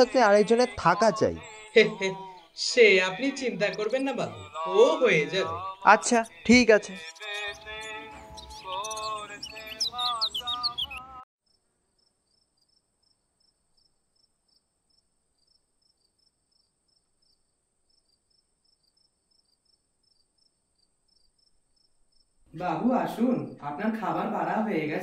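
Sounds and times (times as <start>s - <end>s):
melodic background music: 0.0s - 10.4s
crickets chirping and trilling: 7.0s - 11.0s, 12.3s - 22.4s.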